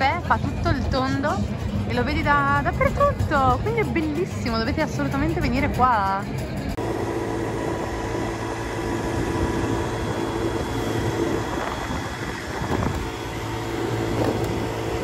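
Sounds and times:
scooter engine humming: 0.0s - 15.0s
wind on microphone: 7.5s - 15.0s.

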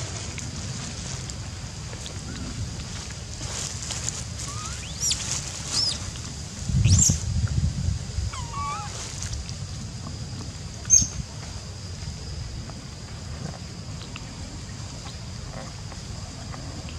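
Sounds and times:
wind rumbling on microphone: 0.0s - 16.9s
monkeys squealing: 4.4s - 6.1s, 8.3s - 9.0s
low wavering monkey call: 4.4s - 6.2s, 6.8s - 7.2s, 8.2s - 9.2s, 10.8s - 11.2s.

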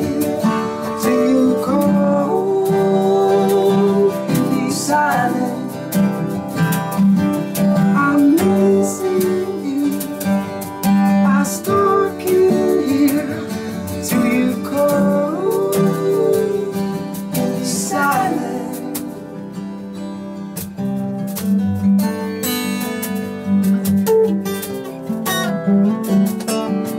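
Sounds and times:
man singing: 0.0s - 6.4s, 7.8s - 19.8s
acoustic guitars playing: 0.0s - 26.9s.

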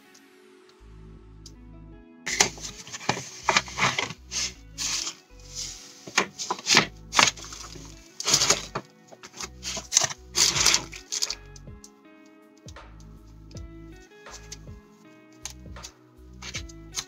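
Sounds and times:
background music with bass line: 0.0s - 17.0s
paper packaging crinkling: 2.3s - 11.4s.

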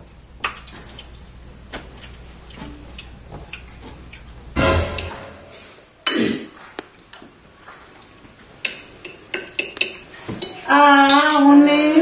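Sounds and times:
loud sudden noises: 4.6s - 5.9s.

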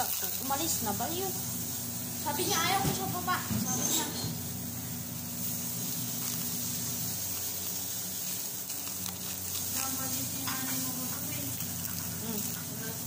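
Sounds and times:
steady hiss: 4.3s - 13.0s.

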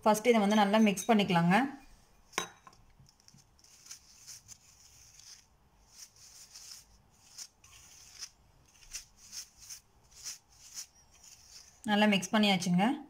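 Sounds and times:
fingers swishing through flour: 3.4s - 11.9s.

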